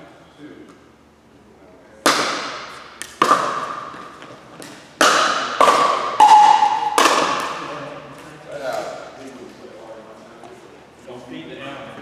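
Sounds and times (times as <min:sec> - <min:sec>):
paddles hitting plastic ball: 0:02.0 - 0:08.3.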